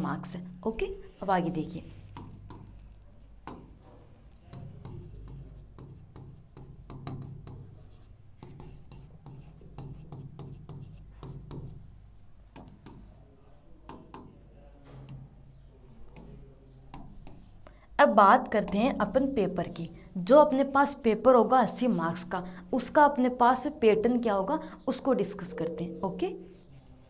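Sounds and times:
stylus tapping on touchscreen: 1.8 - 3.9, 4.5 - 11.9, 12.5 - 13.2, 13.8 - 15.3, 16.1 - 17.6.

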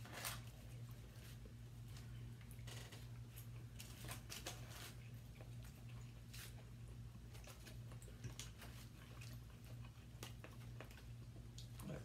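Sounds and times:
steady low hum: 0.0 - 12.0
chewing smacks: 0.5 - 12.0.

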